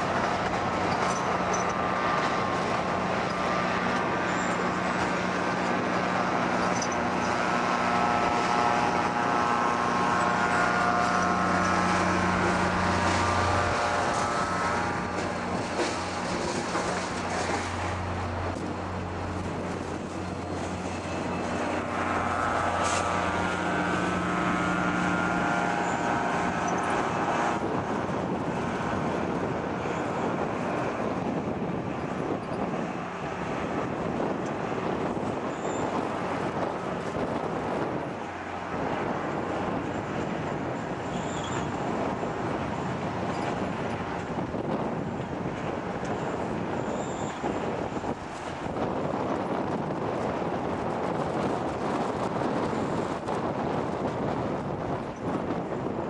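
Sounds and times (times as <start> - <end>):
pitched whine: 0.0 - 44.7
diesel locomotive humming: 0.0 - 56.0
train coaches rolling over rails: 0.0 - 56.0.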